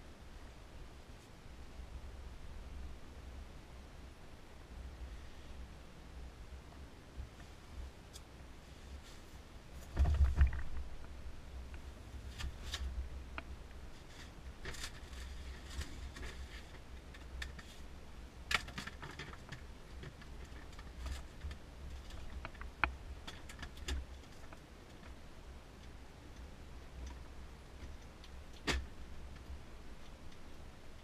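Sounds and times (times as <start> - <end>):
gear handling clicks and rustles: 18.5 - 25.2.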